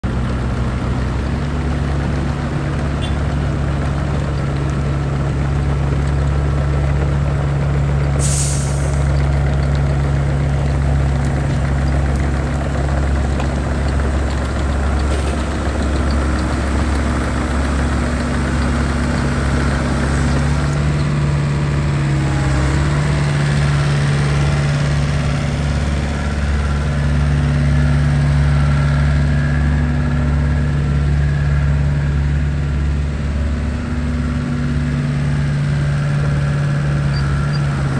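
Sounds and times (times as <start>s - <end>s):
excavator diesel engine running: 0.0s - 37.9s
short sharp hiss: 8.2s - 9.0s.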